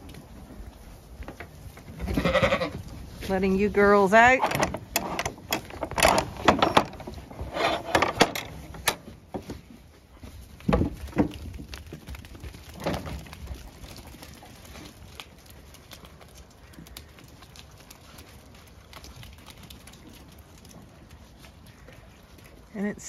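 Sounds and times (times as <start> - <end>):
wooden gate and latch clattering: 4.2 - 9.5.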